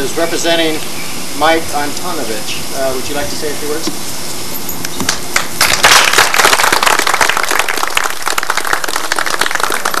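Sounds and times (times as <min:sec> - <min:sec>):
audience applauding: 0:05.1 - 0:10.0.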